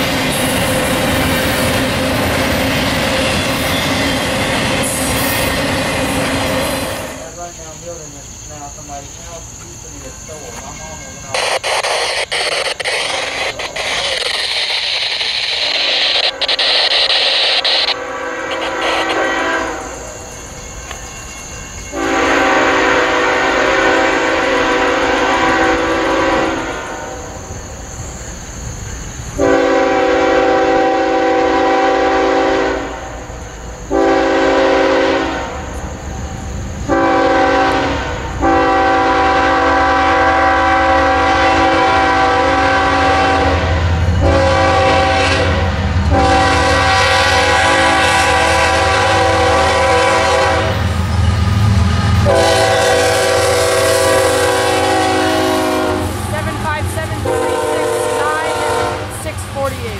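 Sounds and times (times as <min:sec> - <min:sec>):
locomotive air horn blasts: 0:17.7 - 0:20.1, 0:21.9 - 0:27.2, 0:29.4 - 0:33.1, 0:33.9 - 0:35.6, 0:36.9 - 0:50.9, 0:51.8 - 0:59.4.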